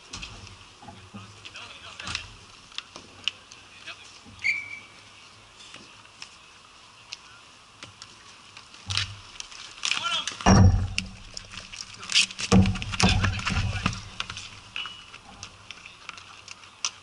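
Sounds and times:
hockey sticks and ball clacking: 0:09.7 - 0:17.0
loud low thump: 0:10.5 - 0:11.4.

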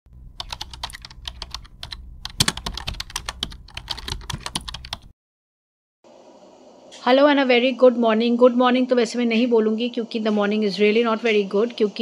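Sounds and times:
keyboard typing clicks: 0:00.4 - 0:05.1.

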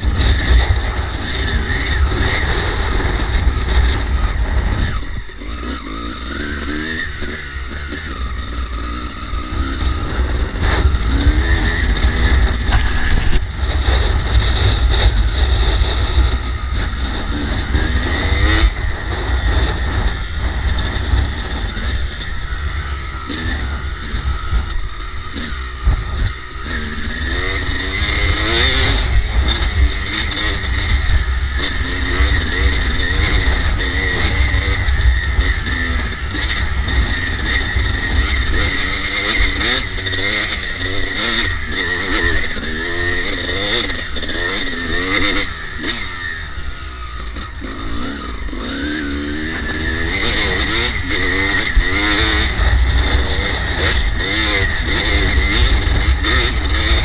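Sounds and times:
wind rumble on microphone: 0:00.0 - 0:05.4, 0:09.5 - 0:26.7
dirt bike engine revving: 0:00.0 - 0:57.0.

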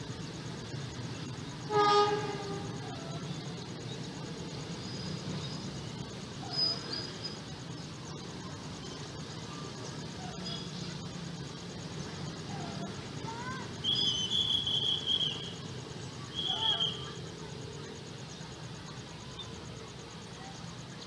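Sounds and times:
steady low rumble: 0:00.0 - 0:13.8
faint high chirps: 0:00.0 - 0:21.0
buzzy horn tone: 0:01.6 - 0:03.0.

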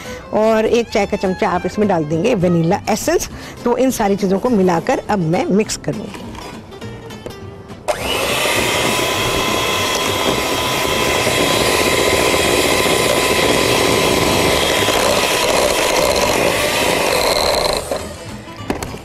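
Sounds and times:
electric hand mixer whining: 0:07.9 - 0:18.4.

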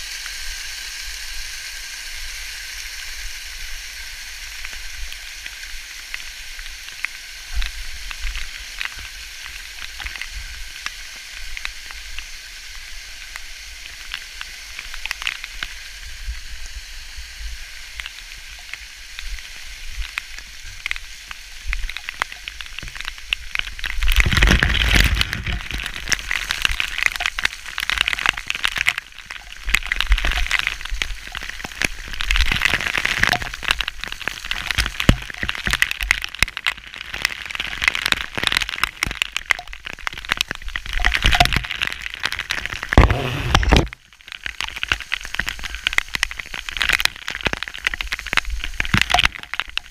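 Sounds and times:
water splashing onto camera: 0:17.9 - 0:49.9.

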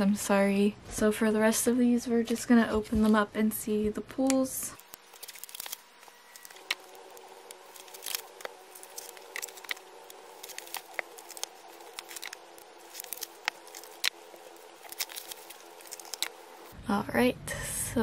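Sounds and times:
faint steady hum: 0:00.0 - 0:18.0
card and paper rustling: 0:04.8 - 0:16.7.

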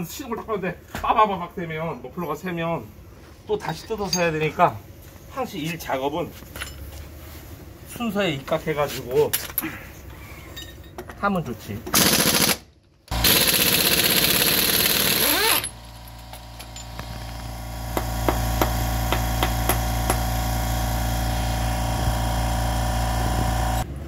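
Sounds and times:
pneumatic impact wrench hammering: 0:11.9 - 0:23.8
low hum: 0:15.2 - 0:24.0.

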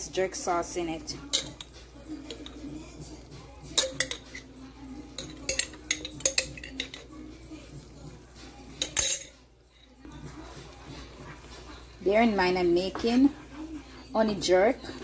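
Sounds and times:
spoon clinking against glass jar: 0:03.7 - 0:04.5, 0:05.2 - 0:07.1, 0:08.8 - 0:09.4.

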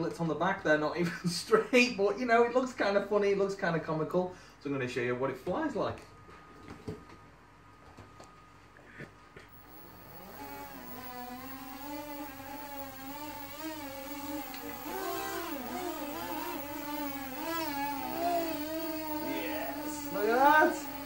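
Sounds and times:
electric motors and propellers buzzing: 0:09.5 - 0:21.0.

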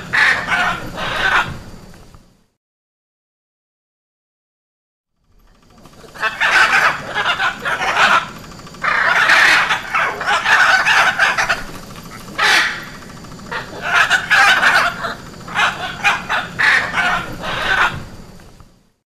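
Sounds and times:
macaw squawking: 0:00.0 - 0:01.7, 0:05.4 - 0:18.4.

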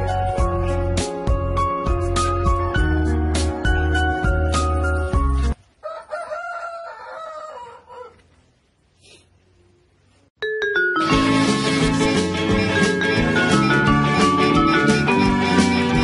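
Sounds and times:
music: 0:00.0 - 0:05.6, 0:10.4 - 0:16.0.

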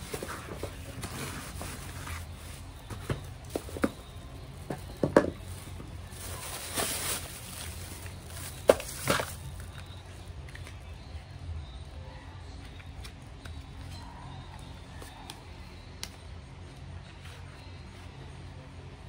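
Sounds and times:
bag rustling and crinkling: 0:00.0 - 0:10.0.

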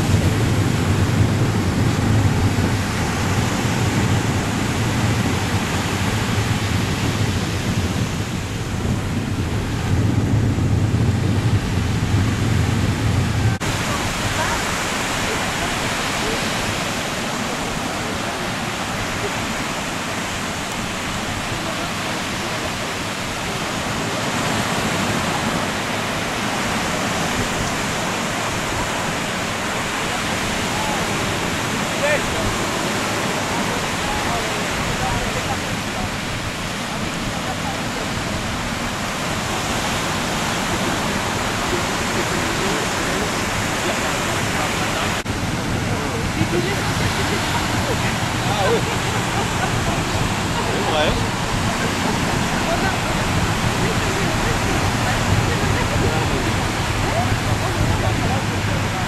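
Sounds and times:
deep rumble: 0:00.0 - 0:13.9
surf breaking: 0:00.0 - 0:59.0
wind on microphone: 0:00.0 - 0:59.0.

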